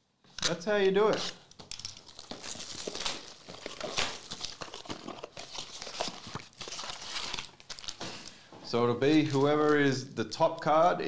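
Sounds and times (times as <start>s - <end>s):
foil packs crinkling: 0.5s - 10.0s
cardboard box tearing: 2.2s - 8.0s.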